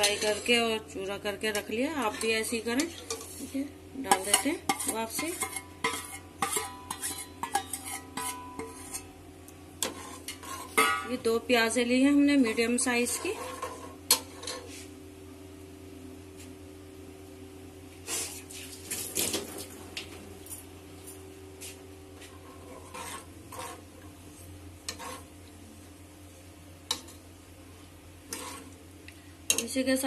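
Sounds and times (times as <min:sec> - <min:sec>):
steady low hum: 0:00.0 - 0:30.0
ladle scraping and knocking a pot: 0:04.1 - 0:09.1, 0:09.8 - 0:11.1, 0:22.2 - 0:23.8, 0:24.9 - 0:25.3, 0:28.3 - 0:28.7.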